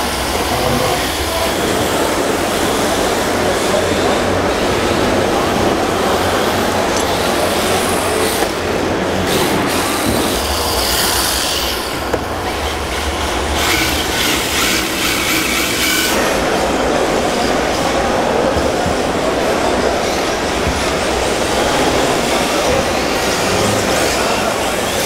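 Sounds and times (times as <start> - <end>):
drift tyres hissing on floor: 9.2 - 16.5.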